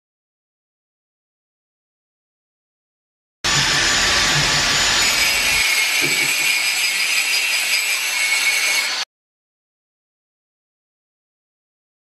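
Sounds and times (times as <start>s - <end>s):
angle grinder cutting metal: 3.5s - 9.1s.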